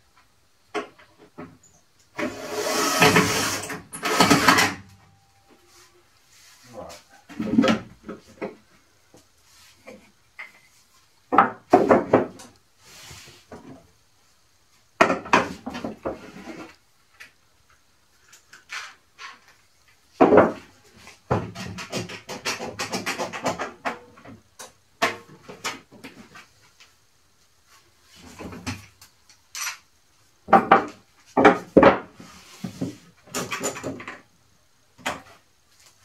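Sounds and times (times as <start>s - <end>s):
wood and tools knocking: 11.3s - 12.6s, 15.0s - 16.8s, 20.1s - 26.2s, 30.4s - 34.3s.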